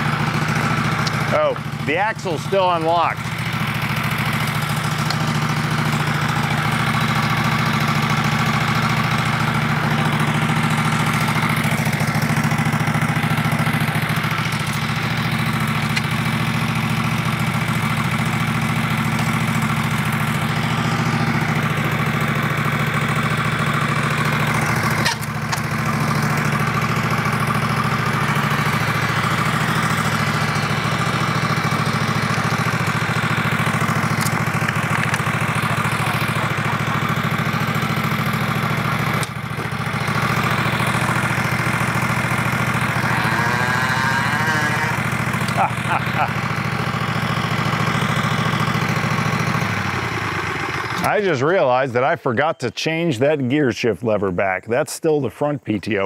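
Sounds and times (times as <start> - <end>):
engine running: 0.0 - 54.2.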